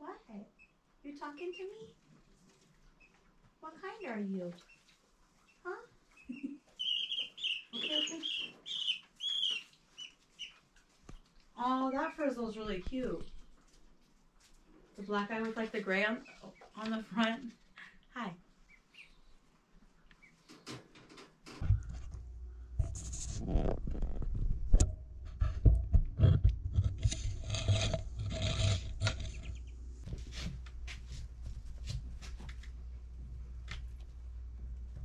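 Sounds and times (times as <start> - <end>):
rubbing and scraping noises: 20.4 - 32.8.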